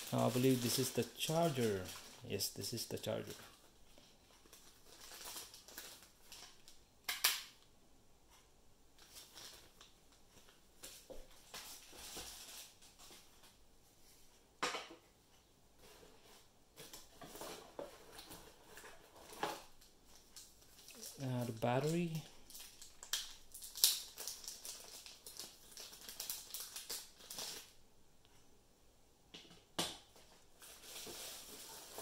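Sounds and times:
plastic packaging crinkling: 0:00.0 - 0:06.8, 0:09.0 - 0:13.6, 0:16.8 - 0:27.8, 0:30.2 - 0:32.0.

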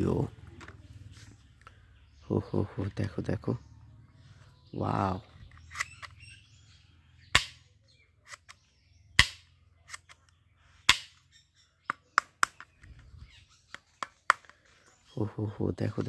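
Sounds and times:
plastic toy gun clicking: 0:09.2 - 0:10.3.

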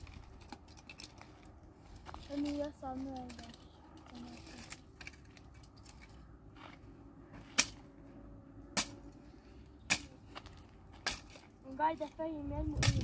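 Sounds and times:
firewood cracking: 0:00.0 - 0:06.2.

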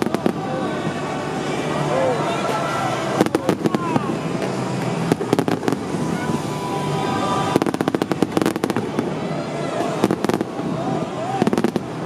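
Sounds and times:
firework bangs: 0:00.0 - 0:00.6, 0:03.1 - 0:06.4, 0:07.4 - 0:09.2, 0:09.8 - 0:10.8, 0:11.4 - 0:12.0
crackling firework reports: 0:00.0 - 0:01.5, 0:02.5 - 0:12.0
steady background din: 0:00.0 - 0:12.0.

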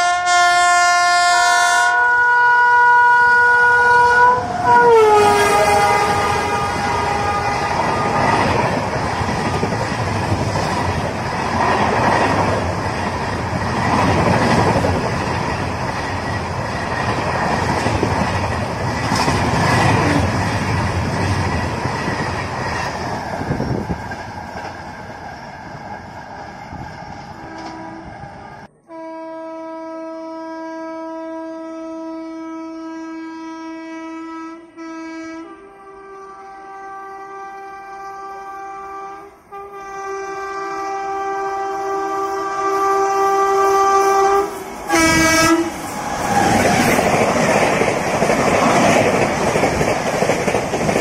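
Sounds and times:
locomotive horn blast: 0:00.0 - 0:08.5, 0:27.3 - 0:45.8
train wheels clattering on rails: 0:07.6 - 0:28.2, 0:43.7 - 0:51.0.

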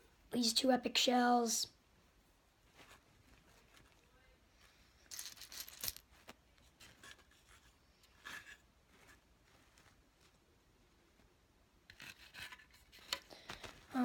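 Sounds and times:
small hard objects rustling: 0:02.7 - 0:10.5.

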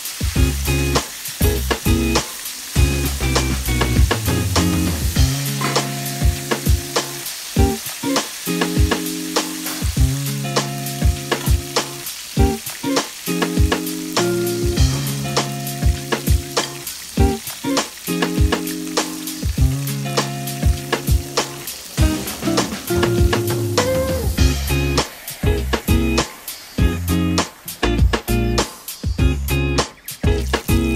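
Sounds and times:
chicken frying in oil: 0:00.0 - 0:29.2, 0:29.8 - 0:30.9
background music with held chords: 0:00.3 - 0:02.2, 0:02.8 - 0:30.9
metal tongs turning food: 0:05.4 - 0:06.2, 0:09.5 - 0:09.9.

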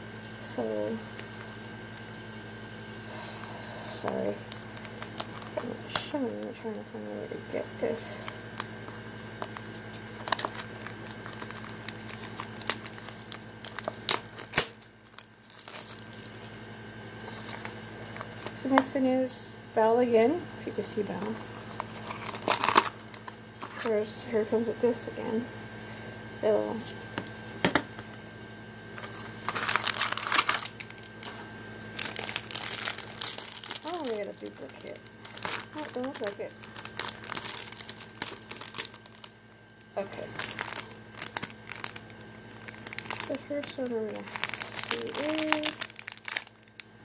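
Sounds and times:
plastic packet crinkling: 0:04.5 - 0:06.5, 0:09.4 - 0:16.6, 0:17.3 - 0:18.7, 0:21.2 - 0:23.9, 0:29.0 - 0:46.9.

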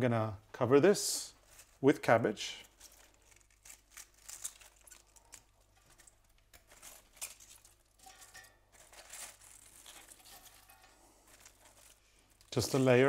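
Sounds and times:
cabbage leaves rustling: 0:02.5 - 0:13.0.

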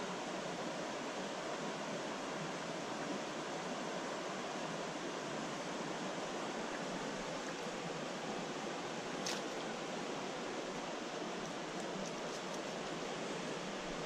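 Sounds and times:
stream rushing: 0:00.0 - 0:14.0.

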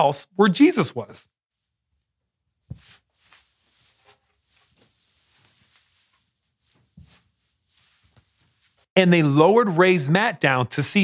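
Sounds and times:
soft paper rustling: 0:02.6 - 0:08.9.

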